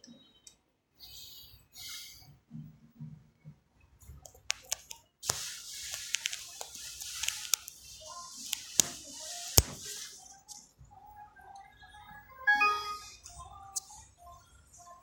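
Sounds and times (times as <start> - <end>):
sharp clicks: 4.3 - 5.4, 6.0 - 7.8, 9.6 - 9.8.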